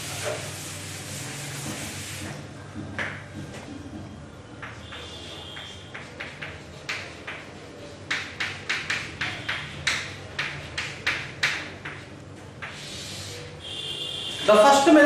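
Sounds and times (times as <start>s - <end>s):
chalk writing on a blackboard: 0.0s - 2.3s, 4.6s - 13.8s.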